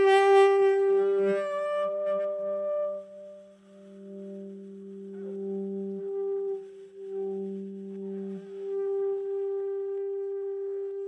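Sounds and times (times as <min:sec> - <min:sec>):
lower tone: 0:00.0 - 0:11.0
saxophone long note: 0:00.0 - 0:11.0.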